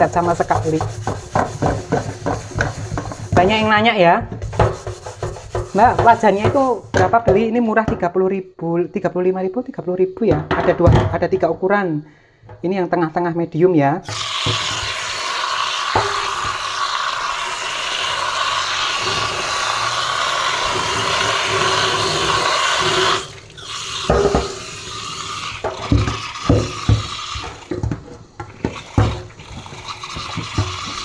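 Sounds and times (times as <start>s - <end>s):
tap water running into a sink: 0.0s - 3.8s, 4.4s - 7.0s, 14.0s - 31.0s
pan knocking against sink: 0.0s - 8.0s, 24.0s - 24.8s, 25.6s - 31.0s.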